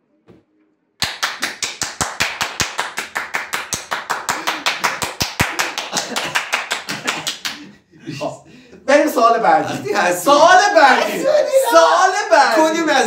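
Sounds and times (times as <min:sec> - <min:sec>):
rapid hand clapping: 0:01.0 - 0:07.6.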